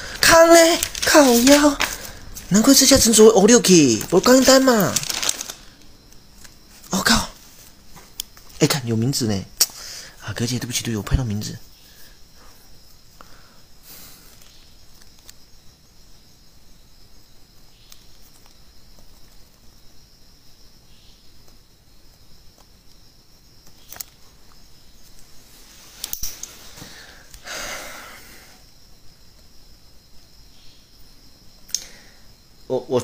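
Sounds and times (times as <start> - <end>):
high-pitched insect trill: 0.0 - 33.0
person sniffing: 26.3 - 28.6.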